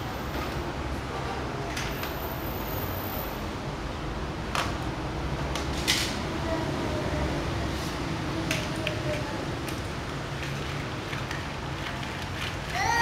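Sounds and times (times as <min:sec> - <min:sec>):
plastic toy cars clacking: 0:05.5 - 0:06.2, 0:08.4 - 0:13.0.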